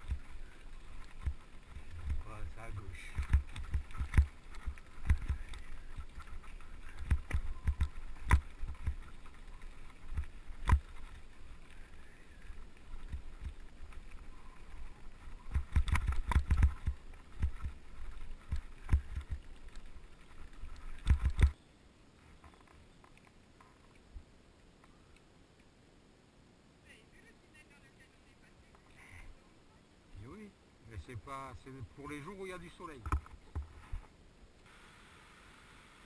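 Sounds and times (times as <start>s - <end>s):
bike knocking over stones: 0.0s - 11.8s, 12.9s - 21.6s
mountain bike rumbling over stones: 0.0s - 21.6s.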